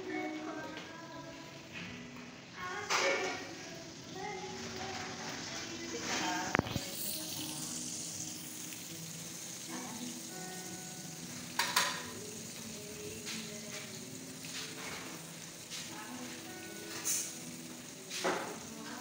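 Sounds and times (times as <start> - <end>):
meat sizzling on grill pan: 2.1 - 19.0
utensil clacking against pan: 11.5 - 12.2.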